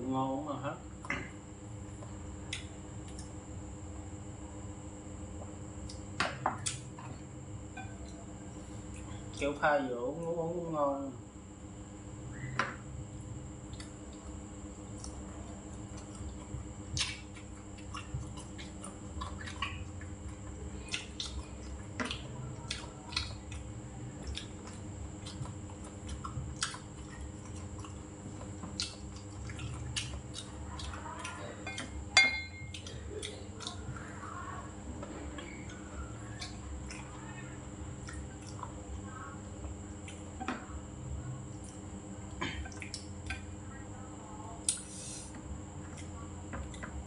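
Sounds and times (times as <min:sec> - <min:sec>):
person chewing: 0:05.3 - 0:07.1, 0:13.1 - 0:34.1, 0:35.3 - 0:37.2, 0:37.9 - 0:39.0, 0:39.6 - 0:40.4, 0:41.5 - 0:43.6, 0:44.6 - 0:46.8.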